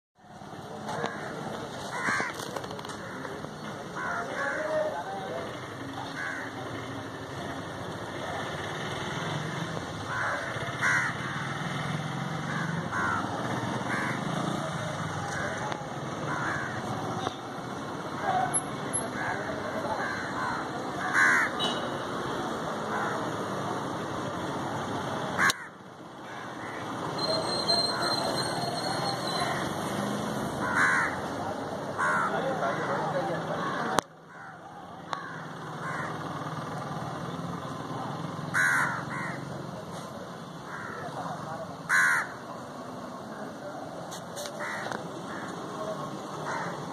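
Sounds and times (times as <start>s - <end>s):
crows cawing: 0.9s - 6.9s, 10.0s - 17.4s, 19.1s - 21.8s, 22.8s - 23.4s, 25.4s - 27.0s, 29.4s - 29.7s, 30.6s - 36.3s, 38.5s - 39.5s, 40.4s - 41.2s, 41.9s - 42.5s, 44.5s - 46.9s.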